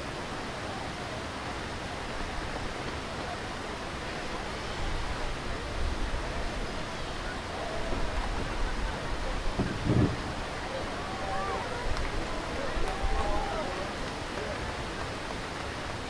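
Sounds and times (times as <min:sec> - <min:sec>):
low gusty rumbles: 0:07.8 - 0:10.7.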